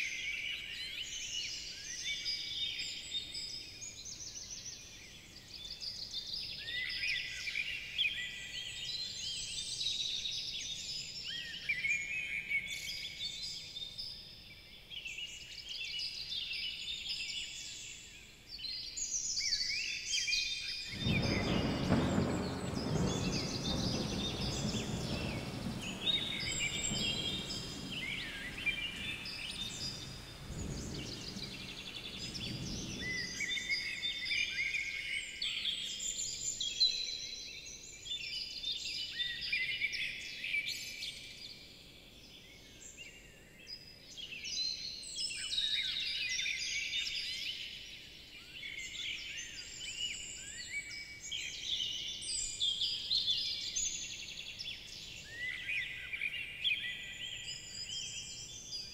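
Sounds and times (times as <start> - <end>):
low rumble: 20.9 - 33.8
songbirds singing: 20.9 - 34.6.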